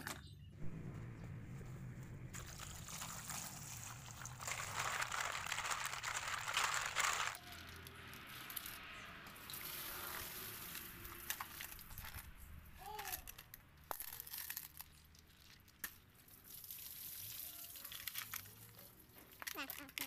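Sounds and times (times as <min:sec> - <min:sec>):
water being poured off: 0:02.4 - 0:05.2, 0:09.3 - 0:12.0
snail shells clattering: 0:02.4 - 0:09.0, 0:10.2 - 0:20.0.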